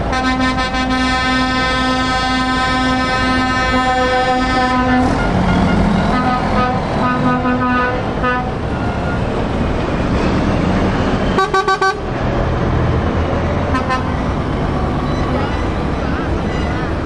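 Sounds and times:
truck horns tooting: 0.0 - 9.4, 11.3 - 12.2, 13.6 - 17.0
truck diesel engines running: 0.0 - 17.0.

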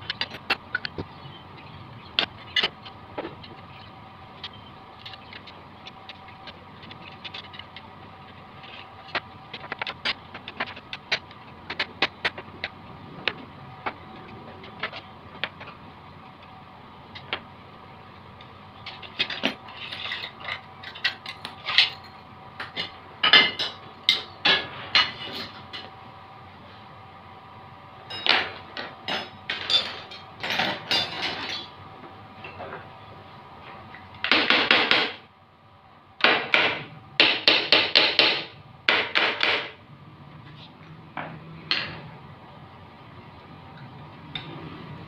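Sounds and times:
steel tools clanking on tiles: 18.9 - 25.9, 28.1 - 31.7.

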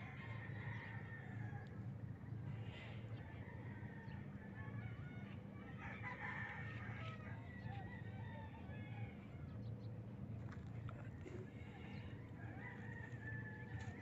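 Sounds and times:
rooster crowing: 0.0 - 1.8, 3.2 - 9.4, 11.8 - 14.0
low steady rumble: 0.0 - 14.0.

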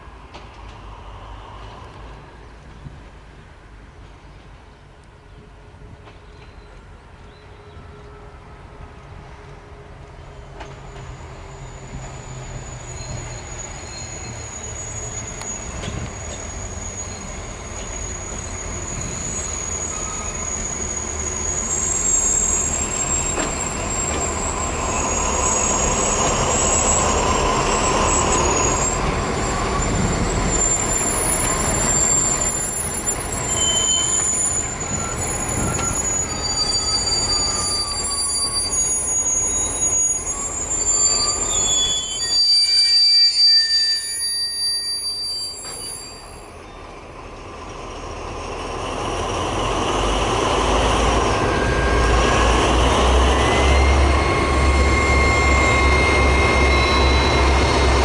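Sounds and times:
diesel locomotive engines: 0.0 - 58.0
high-pitched wheel squeal: 10.8 - 46.9, 50.7 - 58.0.

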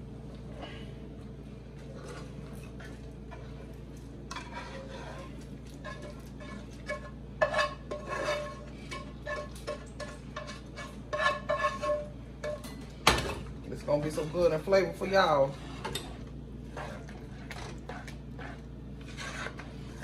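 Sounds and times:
low steady hum: 0.0 - 20.0
utensils scraping a skillet: 1.8 - 12.8, 13.9 - 20.0.

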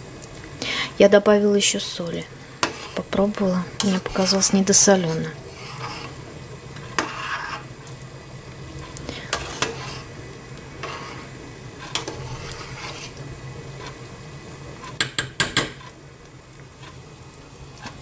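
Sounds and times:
low steady hum: 0.0 - 15.0
ladle stirring in metal pot: 2.6 - 7.8, 8.8 - 13.2.

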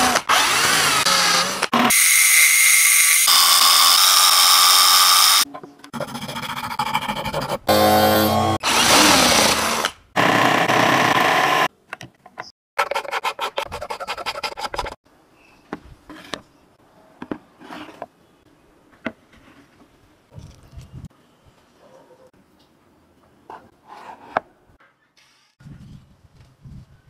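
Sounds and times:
hand file rasping: 12.8 - 15.0.

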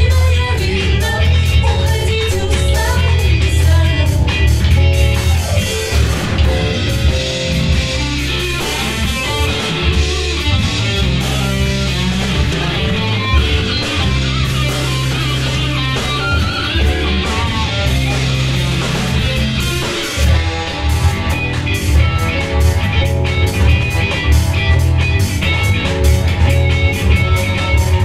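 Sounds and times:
electric guitar: 0.0 - 28.0
live band playing instrumental: 0.0 - 28.0
sustained bass notes: 0.0 - 28.0.

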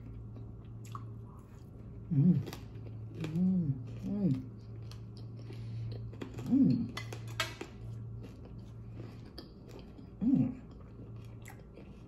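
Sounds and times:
steady low hum: 0.0 - 12.0
person humming mm: 2.1 - 2.5.

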